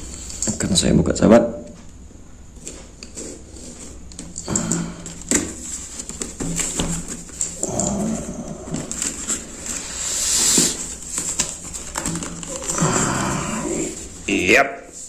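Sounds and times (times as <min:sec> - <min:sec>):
cardboard box scraping and rustling: 0:08.7 - 0:14.2.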